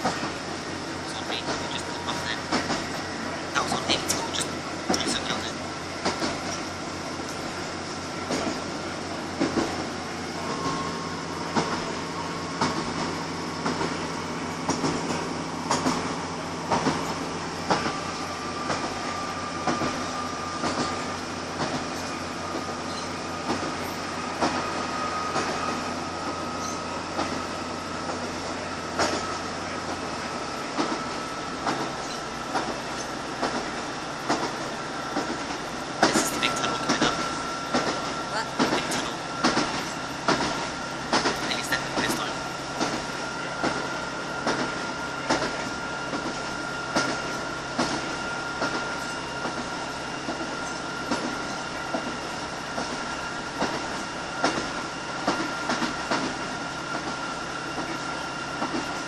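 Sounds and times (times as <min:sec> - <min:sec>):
diesel engine drone: 0:00.0 - 0:55.0
train wheels clacking over rail joints: 0:01.3 - 0:03.1, 0:06.0 - 0:07.6, 0:08.2 - 0:59.0.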